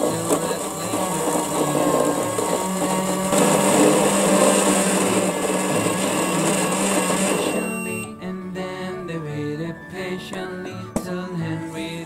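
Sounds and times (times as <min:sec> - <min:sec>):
toy microwave whirring hum: 0:00.0 - 0:08.2.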